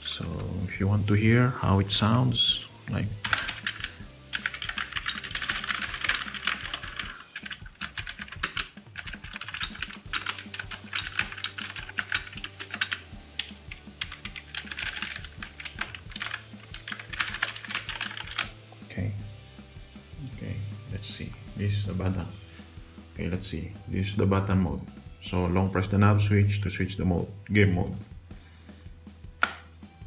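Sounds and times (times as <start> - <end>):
clicky mechanical keyboard typing: 3.3 - 13.0, 14.0 - 18.5.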